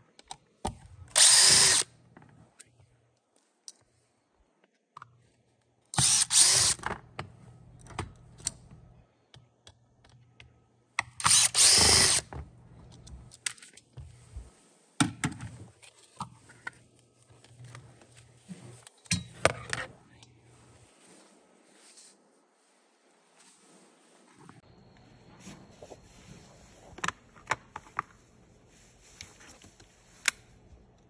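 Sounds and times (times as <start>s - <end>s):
cordless drill running: 1.1s - 1.8s, 6.0s - 6.8s, 11.2s - 12.2s.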